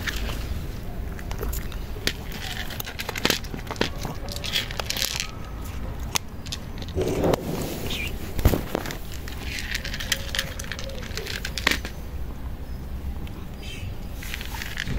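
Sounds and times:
cat crunching dry kibble: 0.0 - 7.3, 8.4 - 12.1, 14.2 - 14.9.

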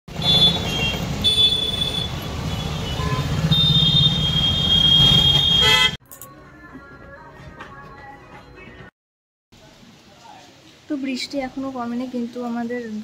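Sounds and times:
motorbike and car engines: 0.1 - 6.0
vehicle horns honking: 0.1 - 6.0
tyre hiss on wet road: 9.6 - 12.3.

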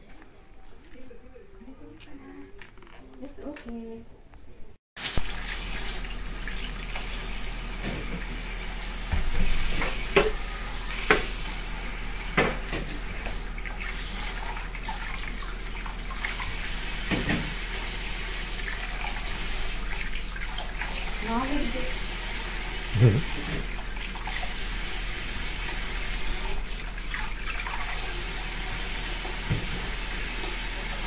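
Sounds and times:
tap running into a bowl: 9.1 - 10.4, 12.4 - 13.4, 17.0 - 17.8, 29.2 - 30.0.

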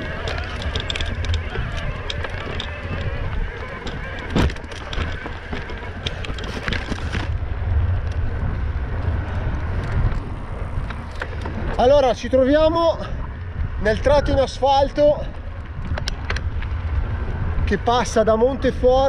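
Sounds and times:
tyres crunching on stones: 0.0 - 8.4
bike rattling and clicking: 0.0 - 19.0
tyres rolling on pavement: 0.0 - 19.0
wind rumbling on microphone: 0.0 - 19.0.

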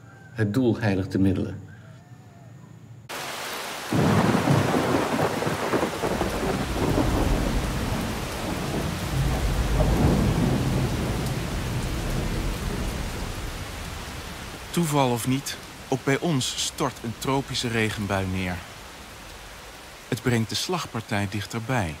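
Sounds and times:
heavy rain downpour: 3.1 - 22.0
rumbling thunder: 3.9 - 14.8.

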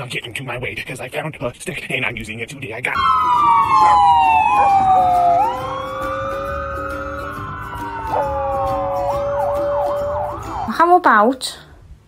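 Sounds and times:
dog howling: 3.0 - 10.7
emergency siren wailing: 3.0 - 10.9.

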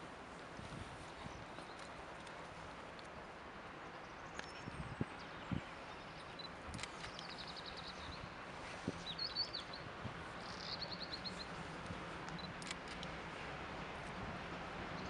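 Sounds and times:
small birds chirping: 3.8 - 13.1
distant train rumble: 6.1 - 15.0.

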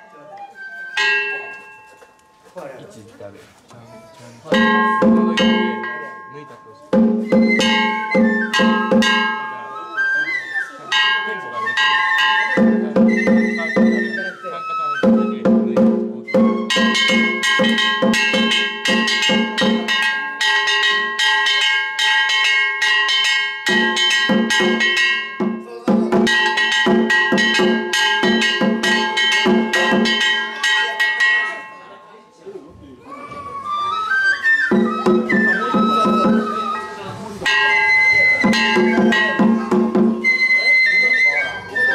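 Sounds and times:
taiko drums beating: 4.5 - 6.3, 6.9 - 9.8, 10.9 - 14.3, 15.0 - 31.7, 34.7 - 40.8
brass gongs ringing: 4.6 - 9.5.

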